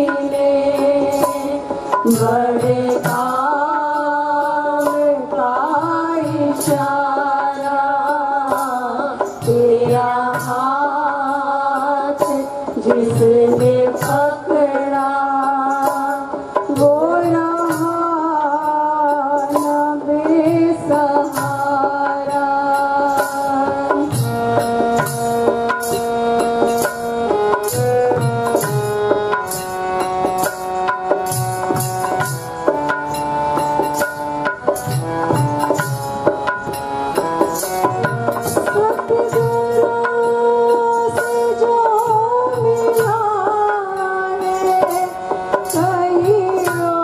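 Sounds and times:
women singing: 0.0 - 25.0, 38.6 - 47.0
reed harmonium: 0.0 - 47.0
tabla drumming: 0.0 - 47.0.

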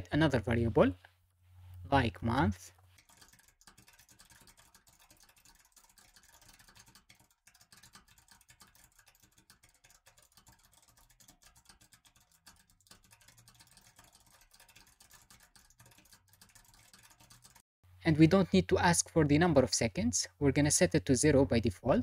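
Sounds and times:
faint keyboard typing: 2.5 - 17.6.

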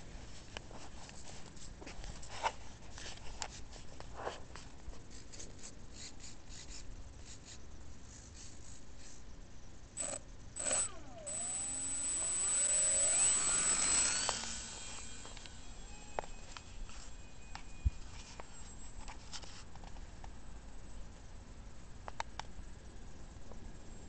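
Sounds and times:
electric motor whine: 10.0 - 18.5.

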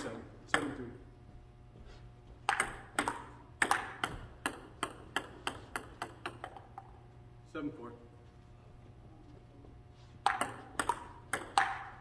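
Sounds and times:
ping-pong ball clicking: 2.4 - 7.0, 10.2 - 12.0.

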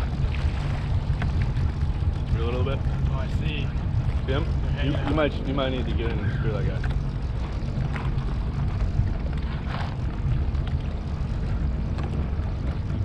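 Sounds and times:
boat engine idling: 0.0 - 13.0.

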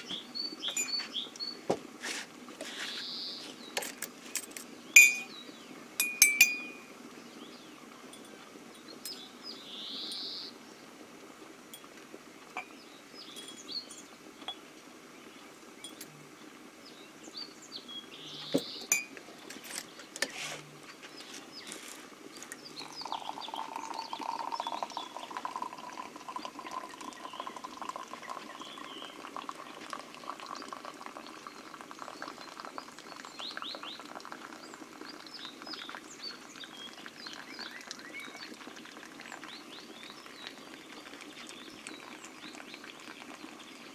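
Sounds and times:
birds chirping: 0.0 - 1.8, 2.6 - 4.0, 4.6 - 10.9, 12.6 - 43.9
samovar boiling: 0.0 - 43.9
crockery clinking: 0.7 - 1.1, 5.0 - 5.3, 6.0 - 6.9, 18.9 - 19.8
pouring liquid: 18.1 - 43.9.

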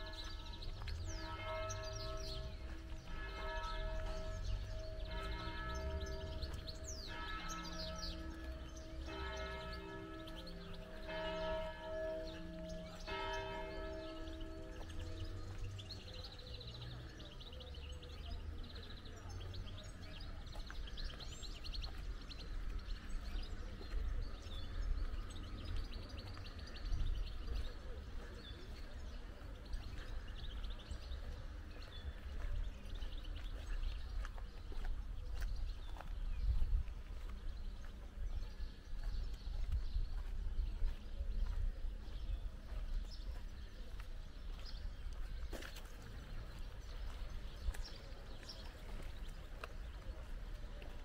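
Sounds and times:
church bell tolling: 0.0 - 16.0
small birds chirping: 0.0 - 51.0.

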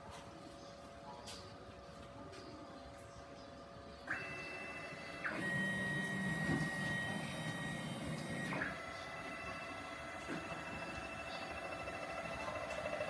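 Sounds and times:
router carriage rumbling: 4.1 - 13.0
stepper motors whining: 4.1 - 13.0.

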